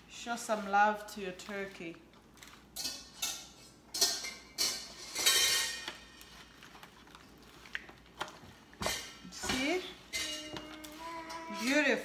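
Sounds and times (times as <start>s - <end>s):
foil pan crinkling: 5.7s - 8.8s
faint wet squishing: 6.2s - 8.8s.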